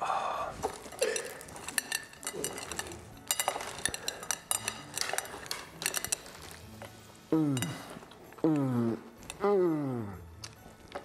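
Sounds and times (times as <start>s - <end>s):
ceramic plate clinking: 0.7s - 8.2s.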